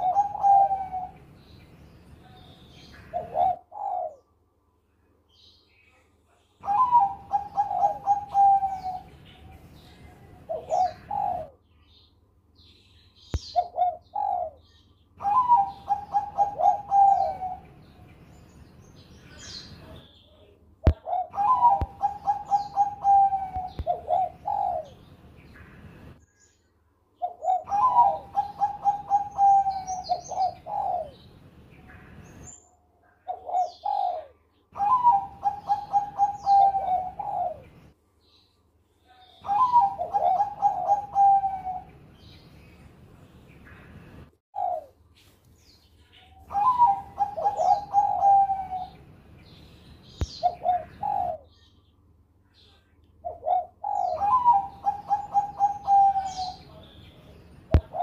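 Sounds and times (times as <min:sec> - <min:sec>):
dove cooing: 0:00.0 - 0:01.5, 0:02.2 - 0:04.4, 0:06.6 - 0:11.6, 0:13.4 - 0:18.1, 0:20.9 - 0:25.8, 0:27.2 - 0:31.3, 0:33.2 - 0:37.8, 0:39.1 - 0:42.0, 0:44.5 - 0:45.0, 0:46.3 - 0:49.1, 0:50.2 - 0:51.5, 0:53.2 - 0:56.9, 0:57.7 - 0:58.0.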